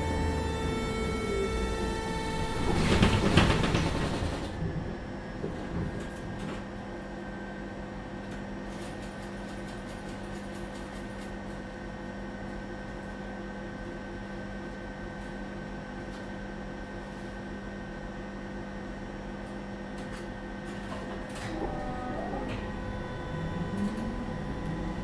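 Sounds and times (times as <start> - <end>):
tram rumbling: 0.0 - 7.0, 20.7 - 25.0
electrical hum: 20.4 - 25.0.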